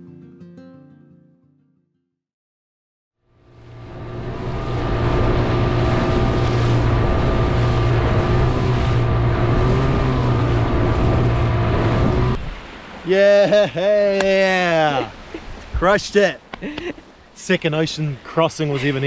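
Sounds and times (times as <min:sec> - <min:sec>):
outboard motor droning: 0:03.3 - 0:15.4
water noise: 0:03.3 - 0:19.0
wind: 0:03.3 - 0:19.0.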